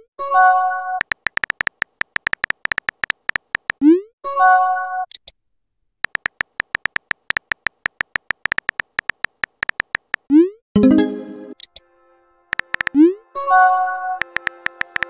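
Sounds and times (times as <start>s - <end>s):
keyboard tap clicks: 1.0s - 3.8s, 6.0s - 10.3s, 12.5s - 13.0s, 14.2s - 15.0s
chime message tone: 10.8s - 11.6s.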